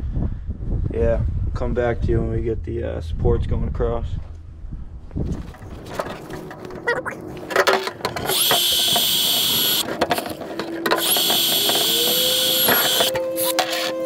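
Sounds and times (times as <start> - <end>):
power drill whining: 8.3 - 9.9, 10.8 - 14.0.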